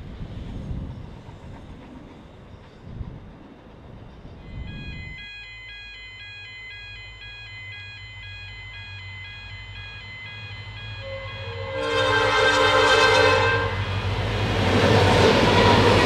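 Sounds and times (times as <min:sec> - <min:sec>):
electronic two-tone warning signal: 0:04.4 - 0:14.1.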